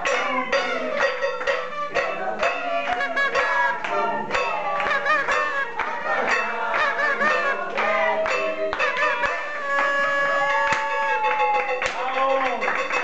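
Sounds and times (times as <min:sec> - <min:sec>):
music with steady beat: 0:00.0 - 0:09.7.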